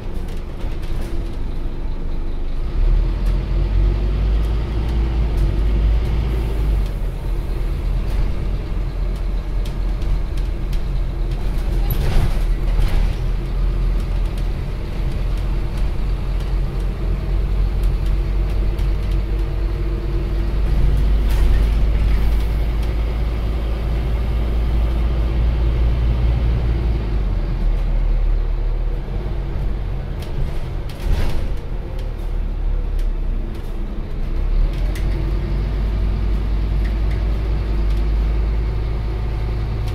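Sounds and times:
bus engine droning: 0:00.0 - 0:39.9.

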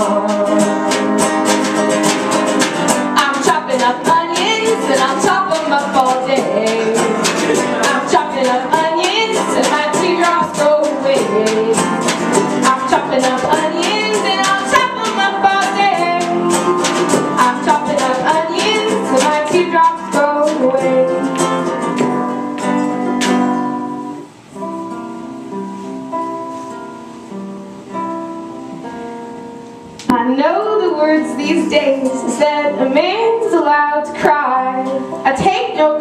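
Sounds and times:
strummed acoustic guitar: 0:00.0 - 0:36.0
people singing: 0:03.2 - 0:11.9.

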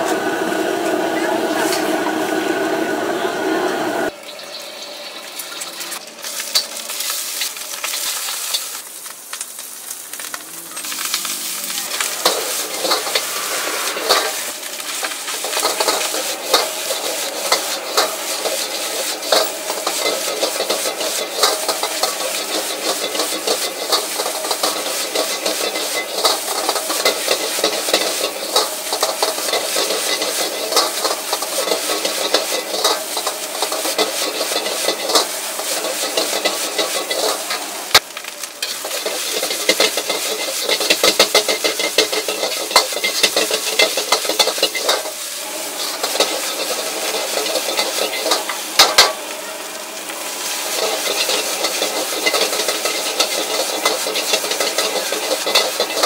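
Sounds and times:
rice sizzling: 0:00.0 - 0:56.0
metal ladle scraping wok: 0:10.7 - 0:37.7, 0:38.6 - 0:49.2, 0:50.4 - 0:56.0.

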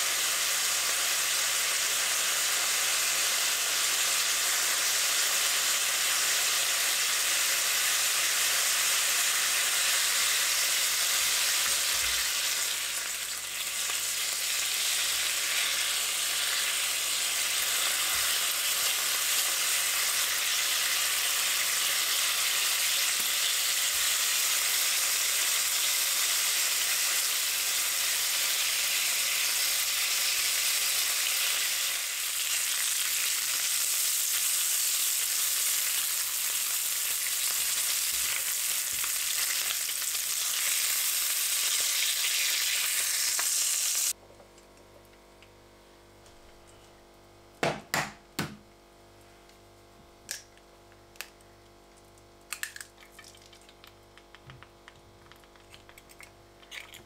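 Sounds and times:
food sizzling in a pan: 0:00.0 - 0:44.2.

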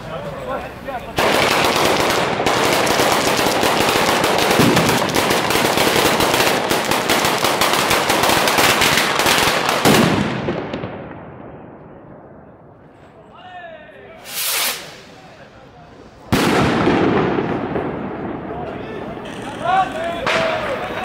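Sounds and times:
firecrackers crackling: 0:00.2 - 0:12.3, 0:14.2 - 0:21.0
heavy bangs: 0:01.2 - 0:12.8, 0:16.2 - 0:19.2.

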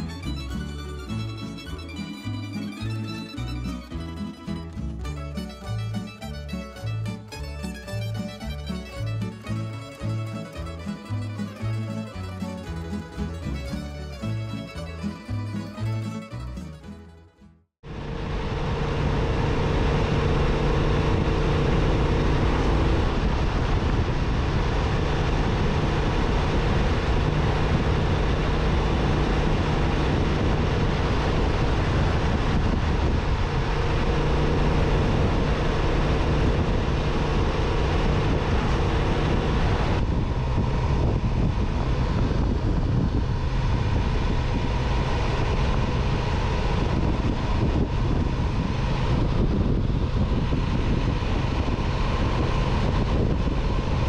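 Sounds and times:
wind rush: 0:17.8 - 0:54.0.

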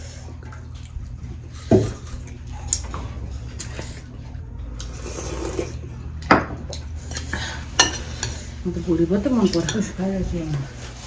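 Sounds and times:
low steady hum: 0:00.0 - 0:11.0
slurp from soup bowl: 0:04.9 - 0:05.9.

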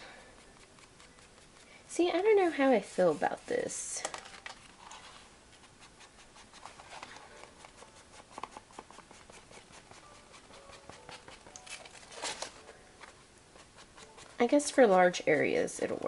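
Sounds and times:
tool scraping cardstock: 0:00.0 - 0:03.4, 0:05.8 - 0:12.5
craft tool rubbing on cardstock: 0:00.0 - 0:03.5, 0:05.6 - 0:11.5.

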